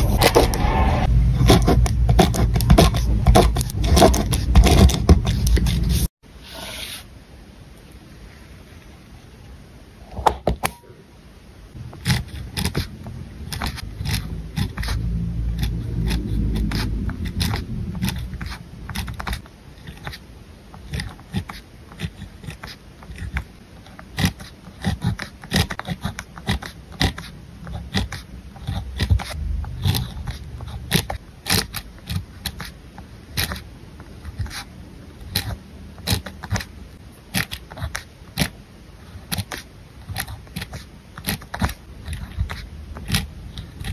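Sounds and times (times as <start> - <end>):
low hum: 0.0 - 3.3, 13.1 - 19.2, 29.4 - 30.8
pen scratching on paper: 0.0 - 7.1, 11.9 - 20.2, 20.8 - 33.6, 34.2 - 36.7, 37.3 - 43.9.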